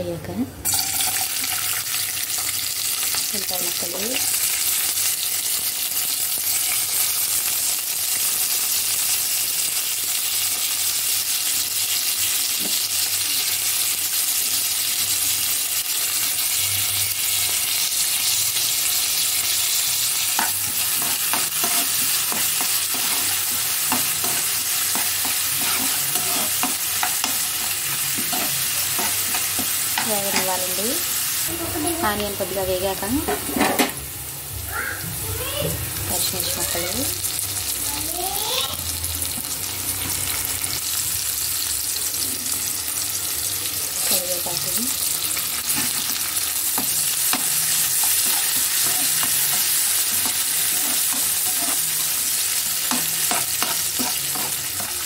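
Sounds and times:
onions sizzling in hot oil: 0:00.6 - 0:55.0
spoon scraping metal pan: 0:20.4 - 0:30.7, 0:46.8 - 0:55.0.

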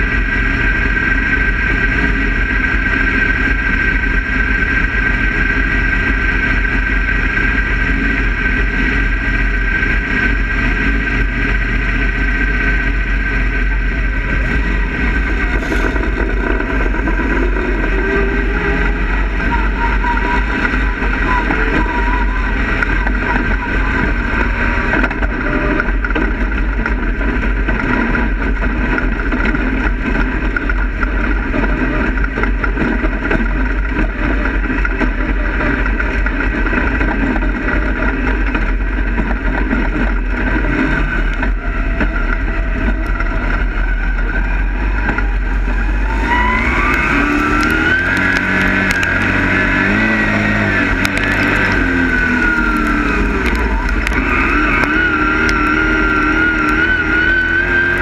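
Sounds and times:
race car engine running: 0:00.0 - 0:58.0.

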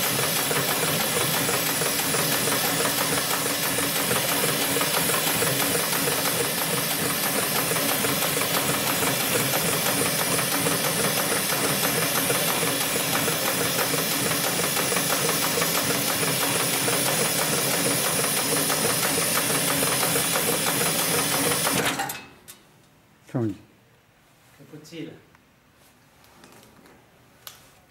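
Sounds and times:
sewing machine stitching: 0:00.0 - 0:22.2.

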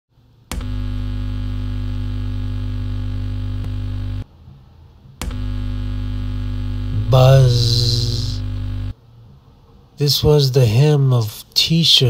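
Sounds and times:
amplifier mains buzz: 0:00.2 - 0:09.2
amplifier switch click: 0:05.2 - 0:05.5.

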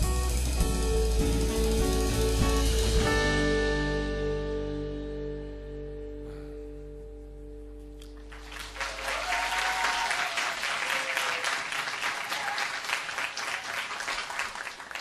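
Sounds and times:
audience applauding: 0:08.1 - 0:15.0.

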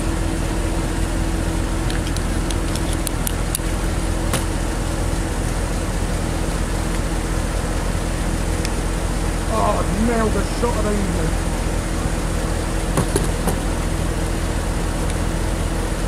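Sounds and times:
low engine-like hum: 0:00.0 - 0:16.0.

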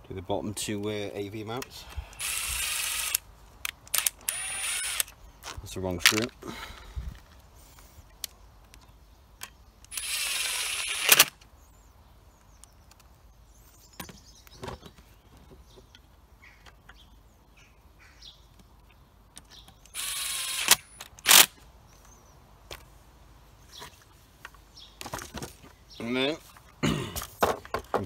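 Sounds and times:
cordless driver running: 0:02.1 - 0:03.2, 0:03.9 - 0:05.1, 0:09.9 - 0:11.3, 0:20.0 - 0:21.5.

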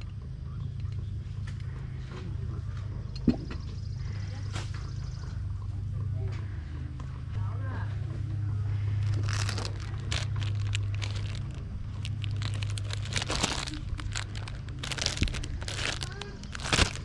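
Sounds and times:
steady low hum: 0:00.0 - 0:17.0
plastic wrap crinkling: 0:09.0 - 0:17.0.

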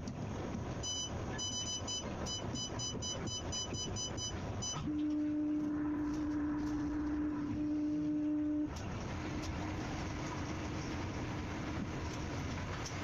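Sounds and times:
electronic warning beeps: 0:00.8 - 0:08.7
low buzzing tone: 0:00.8 - 0:08.8.

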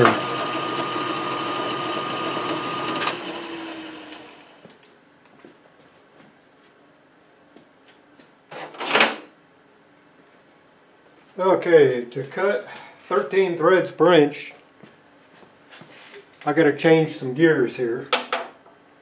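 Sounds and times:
metal lathe whining: 0:00.0 - 0:04.6.

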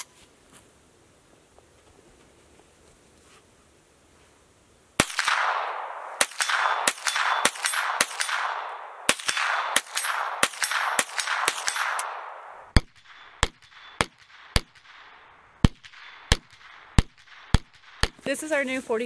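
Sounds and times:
rifle shots with ringing echo: 0:05.0 - 0:18.2.

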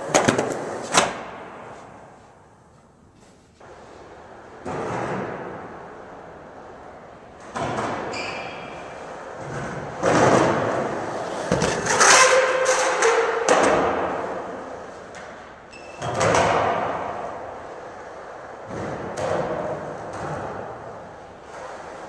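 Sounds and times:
skateboard thuds and clacks: 0:00.0 - 0:01.7
skateboard wheels rolling on concrete: 0:00.0 - 0:22.0.

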